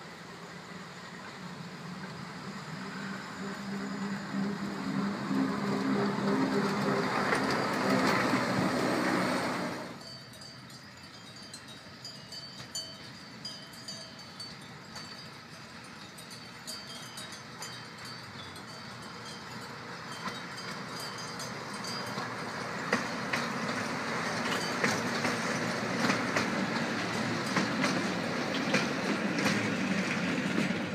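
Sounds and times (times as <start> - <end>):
electric train motors humming: 0.0 - 10.7
wheels rumbling on rail: 0.0 - 30.9
cowbells tinkling: 10.0 - 22.9.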